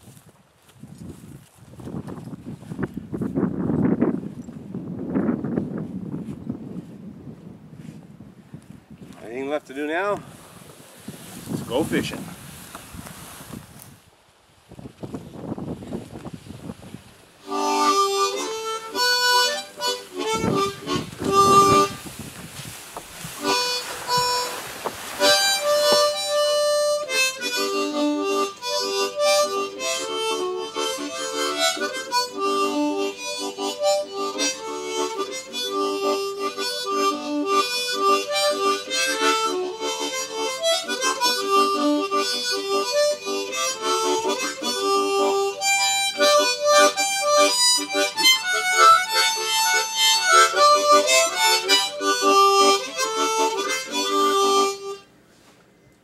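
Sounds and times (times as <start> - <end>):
harmonica melody: 17.4 - 22.3, 23.0 - 55.2.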